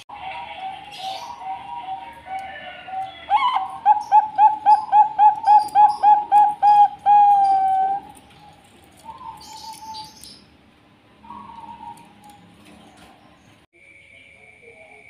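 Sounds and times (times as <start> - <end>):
dove cooing: 0.2 - 8.3, 11.2 - 12.4.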